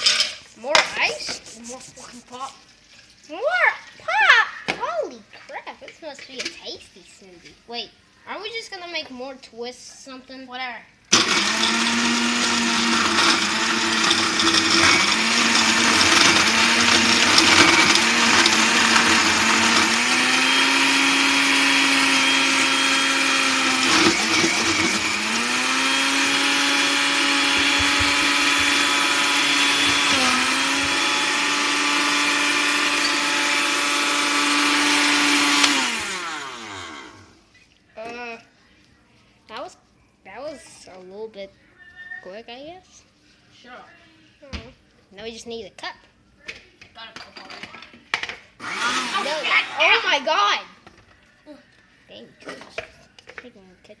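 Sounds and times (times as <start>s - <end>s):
blender crushing ice: 11.1s - 37.3s, 48.6s - 50.2s.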